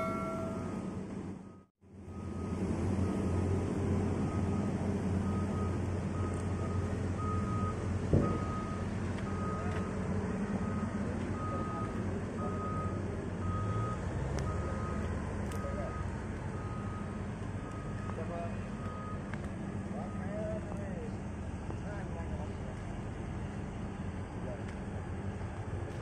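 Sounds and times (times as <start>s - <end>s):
warning beeper: 0.0s - 0.9s
heavy machinery humming: 0.0s - 14.0s.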